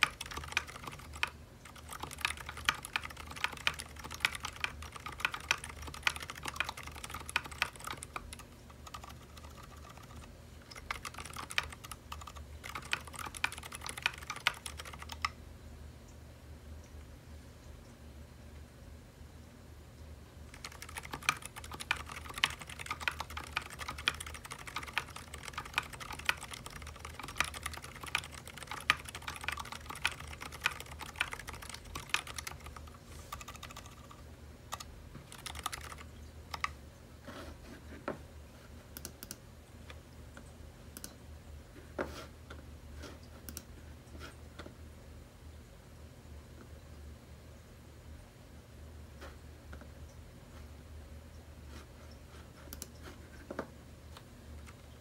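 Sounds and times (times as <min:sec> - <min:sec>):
muted keyboard keystrokes: 0:00.0 - 0:15.4, 0:20.5 - 0:36.8.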